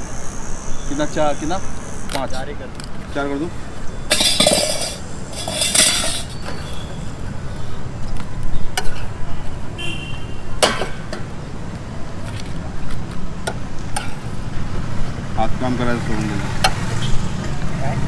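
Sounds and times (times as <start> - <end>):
road traffic noise: 0.0 - 18.0
utensils and dishes clinking: 4.1 - 6.7.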